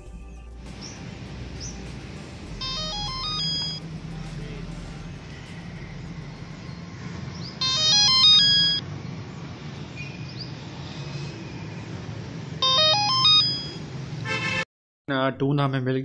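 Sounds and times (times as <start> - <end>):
telephone electronic ring melody: 2.6 - 3.8, 7.6 - 8.8, 12.6 - 13.9.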